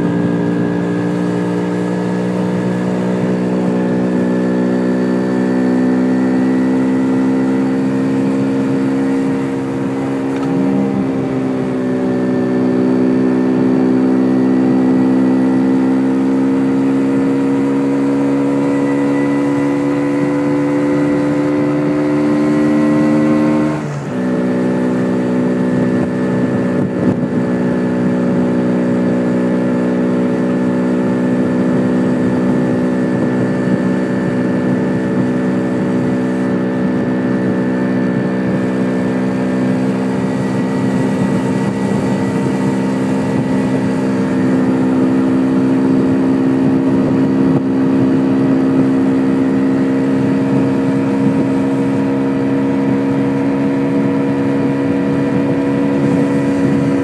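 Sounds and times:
two-stroke motorcycle engine: 0.0 - 57.0
wind noise on microphone: 22.6 - 57.0.

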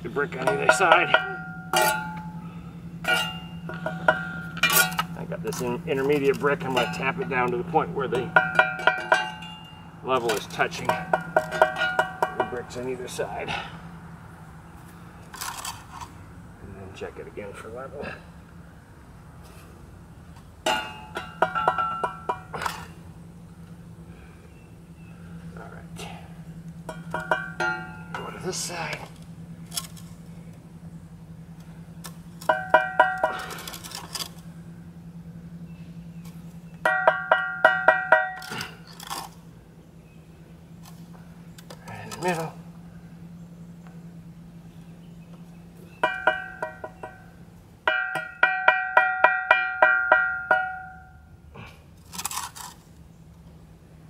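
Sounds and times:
trowel blade ringing: 0.4 - 5.6, 32.4 - 34.3, 36.8 - 39.2, 47.9 - 51.2
trowel scraping: 15.3 - 16.2, 52.0 - 52.9.

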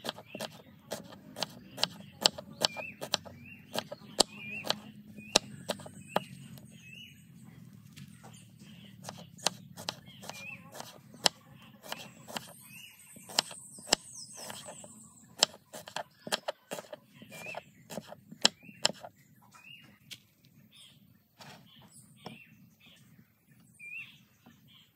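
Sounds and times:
knife cutting on cutting board: 0.0 - 4.8, 5.6 - 6.3, 9.0 - 12.6, 13.2 - 19.1
bird calling: 8.2 - 20.0.

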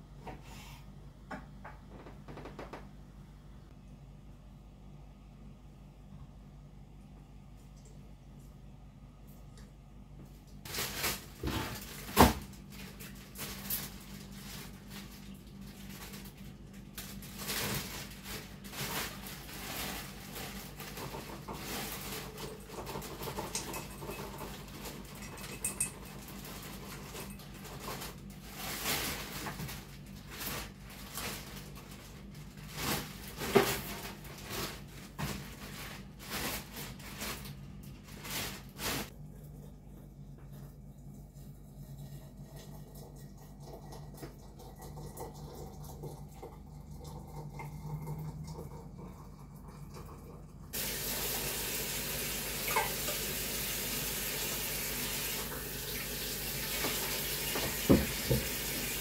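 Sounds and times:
household items knocking and clattering: 57.6 - 58.6.

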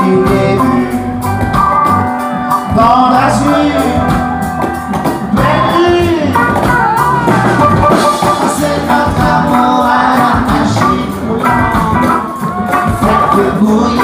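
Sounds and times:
man singing into a microphone: 0.0 - 1.2, 2.6 - 4.2, 5.3 - 6.7, 7.8 - 14.0
cajon beat: 0.0 - 14.0
guitar accompaniment: 0.0 - 14.0.

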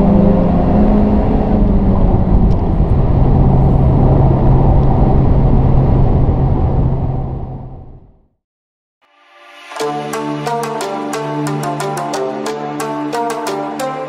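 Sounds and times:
car engine drone inside cabin: 0.0 - 8.1
wind and tyre noise: 0.0 - 8.3.

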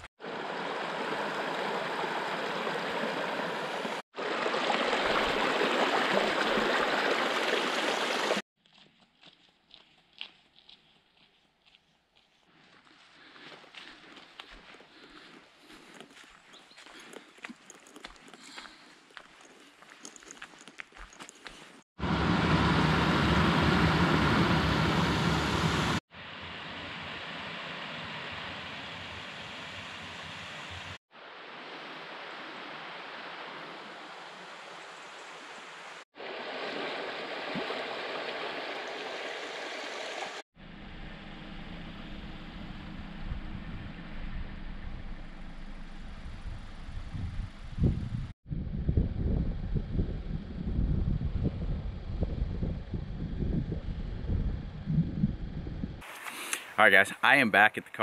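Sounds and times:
water rushing over a weir: 0.0 - 8.4, 36.2 - 40.4
stream running over stones: 0.2 - 8.4, 29.8 - 40.4.

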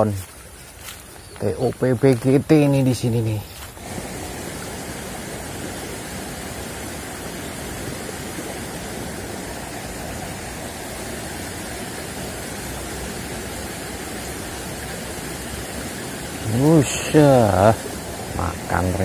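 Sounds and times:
water rushing in a ditch: 0.0 - 19.0.

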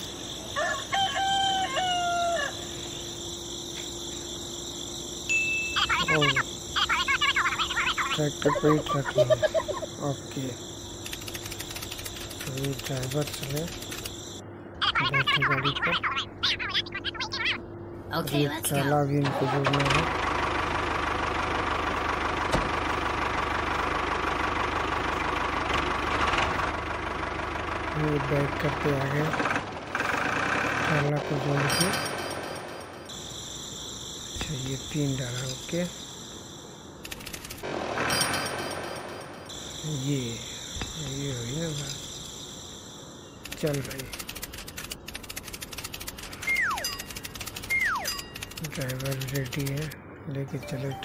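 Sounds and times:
steady high-pitched hum: 0.0 - 20.1, 30.9 - 51.0
rooster crowing: 0.2 - 3.1.

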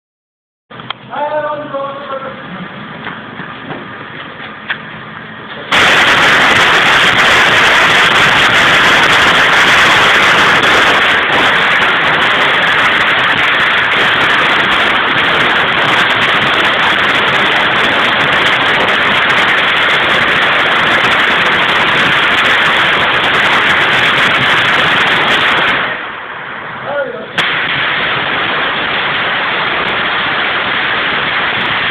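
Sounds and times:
firecrackers crackling on concrete: 0.8 - 31.9.

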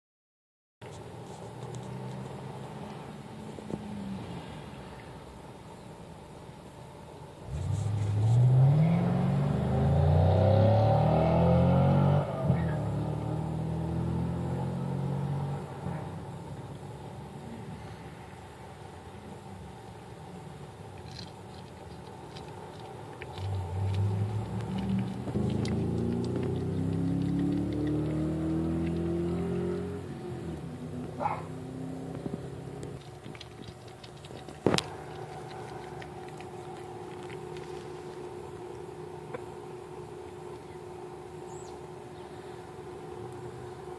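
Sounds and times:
engine revving: 7.4 - 16.3, 23.4 - 33.0
steady low hum: 12.2 - 43.9
cat chewing crunching clicks: 20.9 - 29.1, 32.8 - 39.5.

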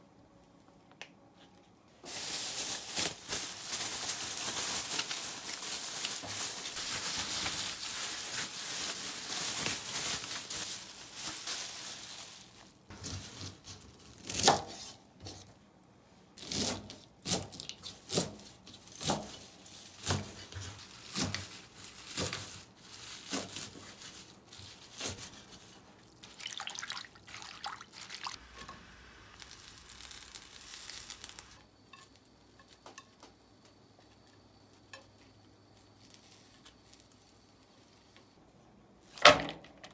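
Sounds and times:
water running from a tap: 26.3 - 28.4.

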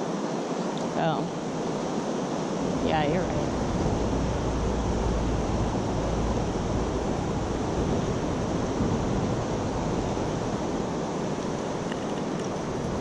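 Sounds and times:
creek water rushing: 1.3 - 13.0
deep rumble: 2.5 - 13.0.

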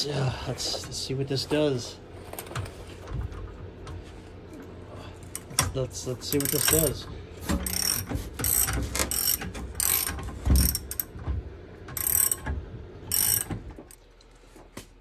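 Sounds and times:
metallic ratcheting clicks: 6.3 - 7.0, 7.6 - 11.1, 12.0 - 12.5, 13.1 - 14.0.

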